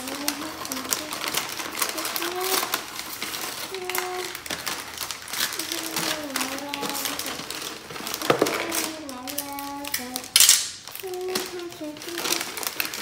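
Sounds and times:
person humming: 0.0s - 2.8s, 3.7s - 4.5s, 5.5s - 7.5s, 11.0s - 12.6s
paper ripping: 0.0s - 13.0s
wrapping paper rustling: 0.0s - 13.0s.

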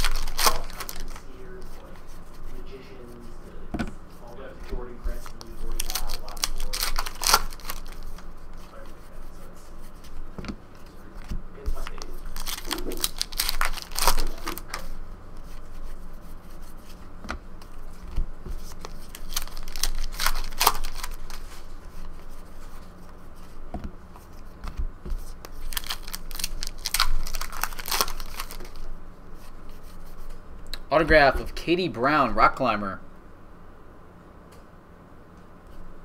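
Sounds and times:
card pack wrappers ripping: 0.0s - 1.2s, 5.1s - 8.2s, 11.8s - 14.9s, 18.7s - 21.6s, 25.5s - 28.9s
cards being handled: 0.0s - 3.2s, 4.2s - 30.4s.

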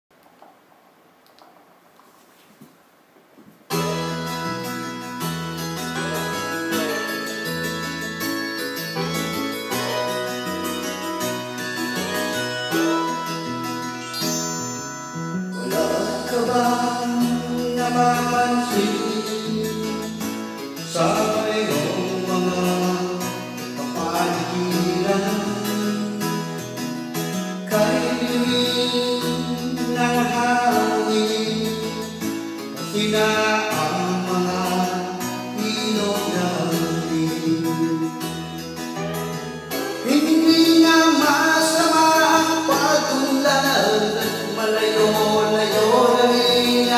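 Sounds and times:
recorded backing music: 3.7s - 46.9s
man singing into a microphone: 15.5s - 39.1s, 39.7s - 46.9s.

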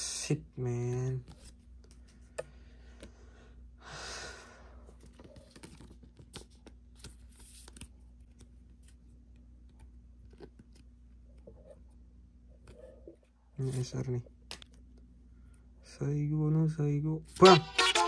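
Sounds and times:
trading cards clicking and rustling: 5.0s - 8.6s.

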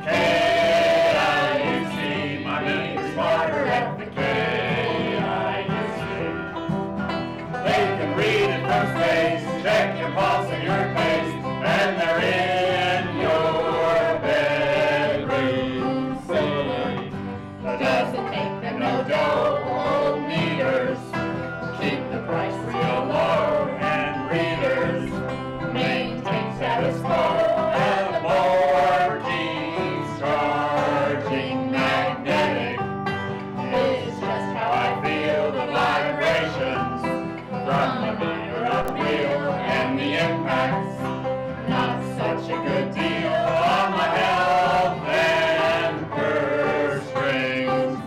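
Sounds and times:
acoustic guitar: 0.0s - 48.0s
banjo: 0.0s - 48.0s
fiddle: 0.0s - 48.0s
group singing together: 0.0s - 48.0s.

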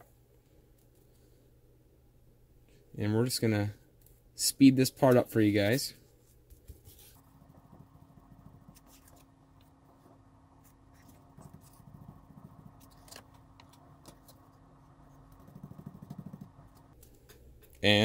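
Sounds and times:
steady low hum: 0.0s - 17.8s
sponge dabbing and rustling: 6.0s - 17.0s.

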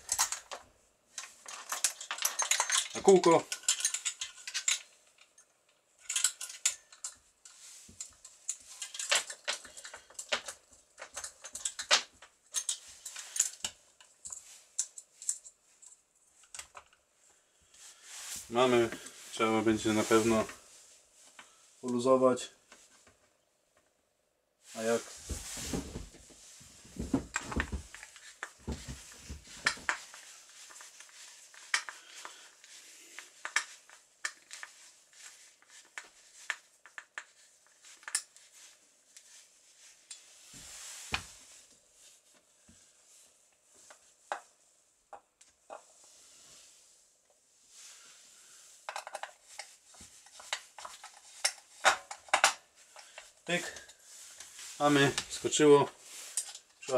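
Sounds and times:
metal clinks and clicks: 1.2s - 7.2s.

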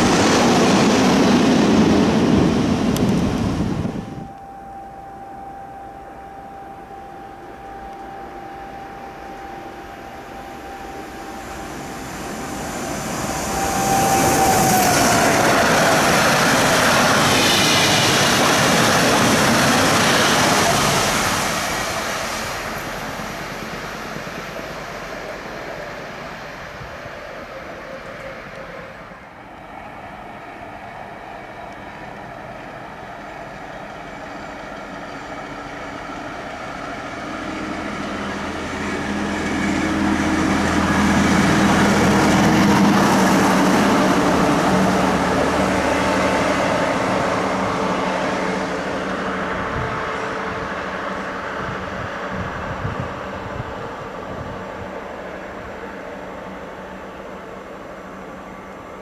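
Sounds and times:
high whine dropping in pitch: 0.0s - 29.1s
electric train passing: 0.0s - 59.0s
track motor car approaching: 0.0s - 59.0s.

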